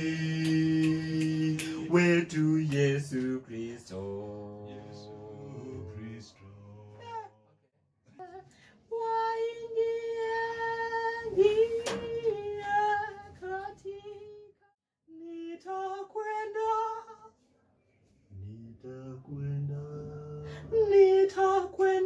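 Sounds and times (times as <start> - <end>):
high voice singing: 0.0 - 7.5.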